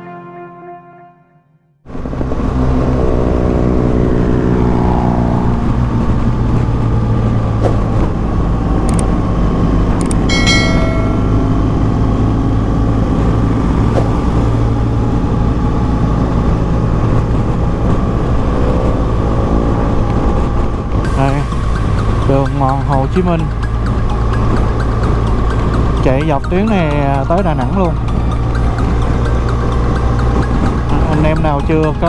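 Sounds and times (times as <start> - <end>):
wind and road noise: 1.8 - 32.0
motorcycle engine cruising: 1.9 - 32.0
short high-pitched tone: 10.3 - 12.2.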